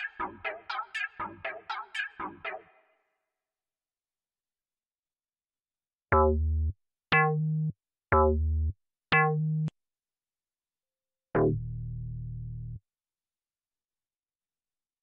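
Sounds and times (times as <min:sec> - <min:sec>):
synthesizer bass notes: 0:06.2 - 0:09.7, 0:11.4 - 0:12.8.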